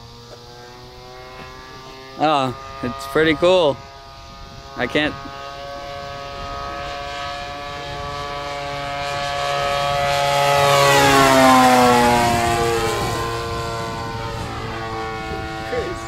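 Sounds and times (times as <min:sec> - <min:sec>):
model aeroplane engine fly-by: 0:00.0 - 0:16.0.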